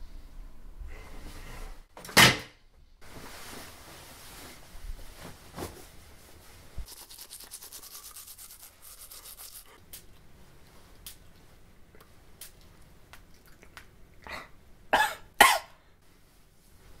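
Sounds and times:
clothing fabric rustling: 0:03.0 - 0:06.9
scratchy rubbing strokes: 0:06.8 - 0:09.8.

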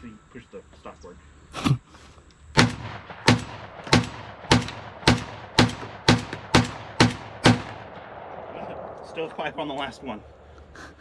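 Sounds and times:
shotgun shots with echo: 0:02.6 - 0:09.0.

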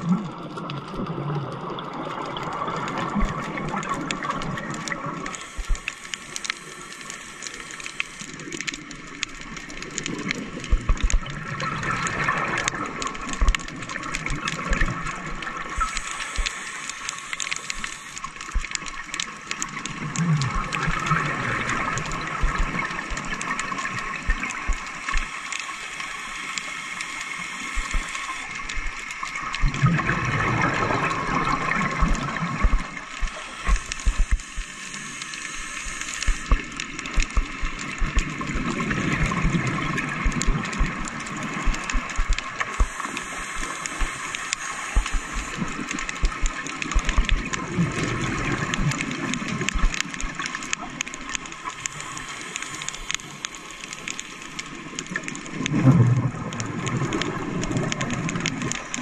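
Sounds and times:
small crackling clicks: 0:00.0 - 0:59.0
scuba regulator bubble bursts: 0:10.0 - 0:18.8, 0:19.8 - 0:25.3, 0:27.7 - 0:34.8, 0:35.5 - 0:52.3, 0:55.0 - 0:59.0
air hissing: 0:15.8 - 0:18.2, 0:33.2 - 0:37.3, 0:42.7 - 0:45.8.

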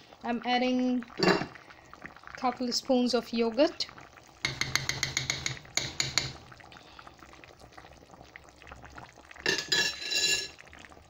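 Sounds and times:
curry bubbling in a pan: 0:00.0 - 0:11.0
utensil clinking: 0:09.5 - 0:10.5.

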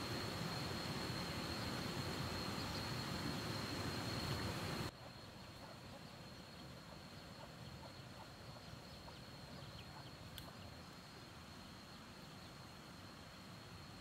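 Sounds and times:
high-pitched insect whine: 0:00.0 - 0:14.0
light click: 0:10.3 - 0:10.6.

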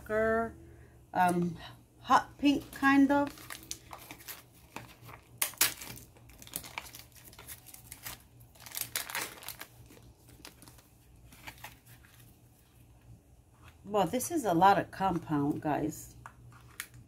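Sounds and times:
crinkly wrapper crackling: 0:02.6 - 0:13.8, 0:16.2 - 0:17.0.

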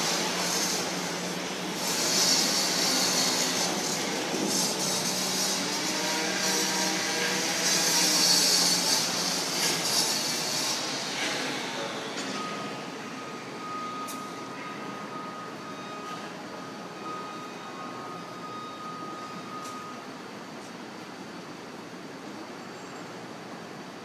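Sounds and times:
loud hissing machine: 0:00.0 - 0:13.6
machinery drone: 0:00.0 - 0:20.8
steady high tone: 0:12.3 - 0:20.2.

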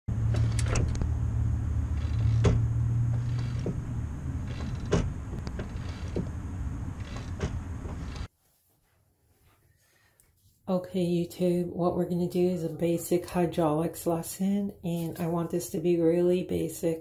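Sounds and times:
steady low hum: 0:00.1 - 0:08.3
clutch linkage creaking and clicking: 0:00.2 - 0:01.2, 0:01.9 - 0:08.3.

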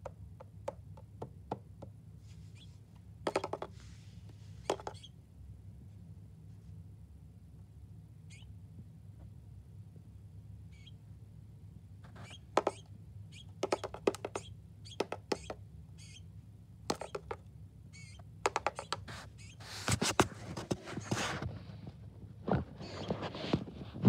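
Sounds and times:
bird beak tapping: 0:03.3 - 0:03.7, 0:04.6 - 0:05.1, 0:12.2 - 0:16.2, 0:16.9 - 0:17.4, 0:18.0 - 0:19.5
scratchy tapping and rustling: 0:03.3 - 0:04.0, 0:04.6 - 0:05.1, 0:12.1 - 0:12.8, 0:13.6 - 0:15.6, 0:16.9 - 0:17.4, 0:18.4 - 0:24.0.

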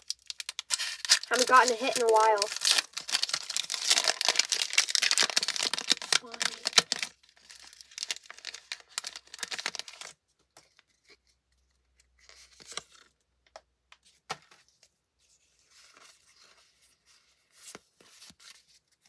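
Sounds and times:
cards clicking and rustling: 0:00.0 - 0:07.1
foil wrapper crinkling: 0:00.0 - 0:10.2.

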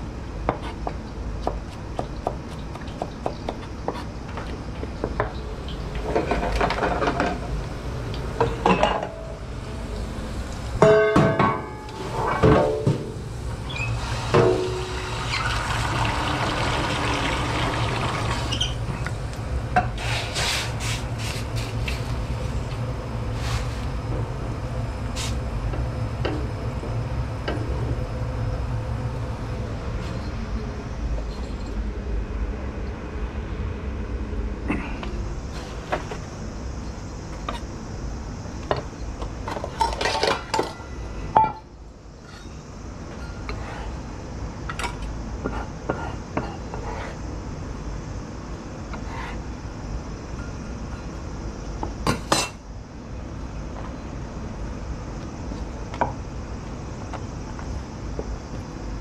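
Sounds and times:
steady low hum: 0:00.0 - 0:59.0
pots and pans clinking: 0:08.4 - 0:09.3, 0:39.5 - 0:40.8
garlic frying in oil: 0:13.7 - 0:18.8.

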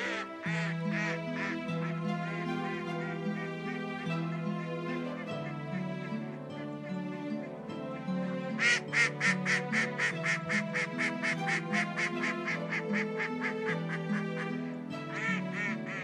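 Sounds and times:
duck quacking rapidly: 0:00.0 - 0:02.0, 0:08.6 - 0:14.4, 0:15.1 - 0:16.0
soft background music: 0:00.0 - 0:16.0.

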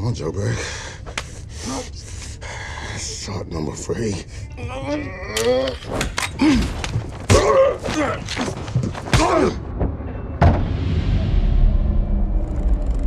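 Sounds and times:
men grunting and groaning: 0:04.5 - 0:09.7
heavy thuds of blows: 0:06.0 - 0:10.7.

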